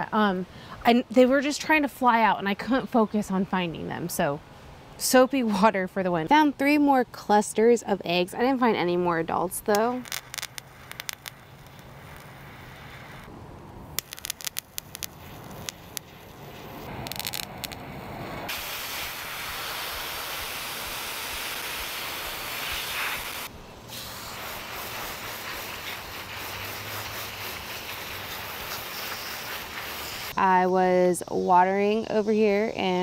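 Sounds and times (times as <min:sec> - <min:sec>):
hose nozzle spraying water: 0:18.5 - 0:30.3.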